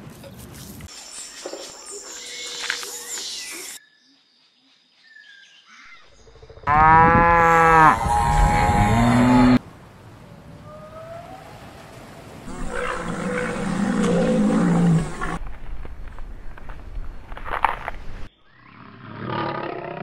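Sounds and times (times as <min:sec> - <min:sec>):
deep drawn-out animal call: 0:06.0 - 0:09.6, 0:12.5 - 0:15.4
rough noisy animal call: 0:12.5 - 0:15.4.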